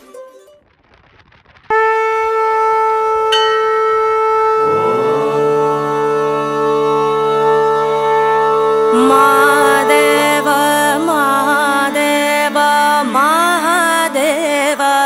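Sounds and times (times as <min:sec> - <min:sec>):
lower conch sliding up in pitch: 0:01.7 - 0:11.3
conch shell long note: 0:01.7 - 0:13.3.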